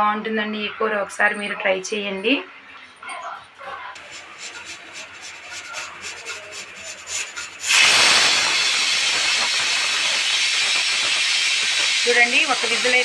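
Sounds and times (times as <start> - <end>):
pressure cooker sputtering: 4.0 - 13.0
pressure cooker steam hissing: 4.0 - 13.0.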